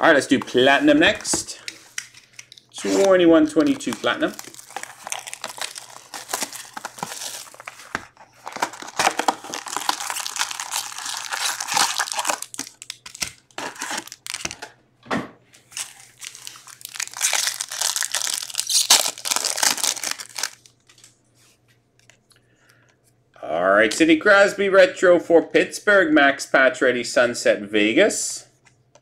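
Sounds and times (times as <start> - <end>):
shrink wrap crinkling and tearing: 0.7 - 14.6, 15.7 - 21.2
foil packs crinkling: 2.5 - 14.6, 15.7 - 21.1.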